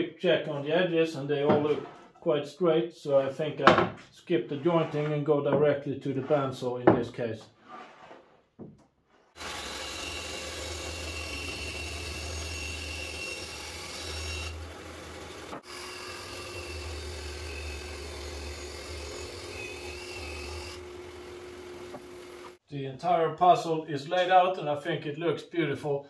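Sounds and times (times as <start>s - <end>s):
bandsaw cutting wood: 9.3s - 22.6s.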